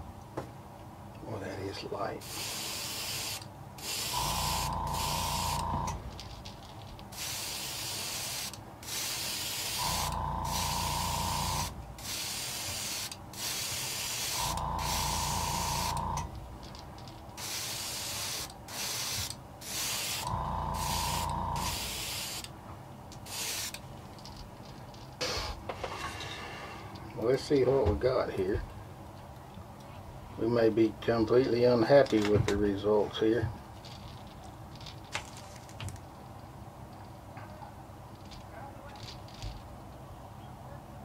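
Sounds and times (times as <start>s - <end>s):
airbrush spraying hiss: 2.2s - 5.9s, 7.1s - 16.3s, 17.4s - 22.5s, 23.2s - 23.8s
small motor humming whine: 4.1s - 6.1s, 9.8s - 11.8s, 14.4s - 16.3s, 20.2s - 22.0s.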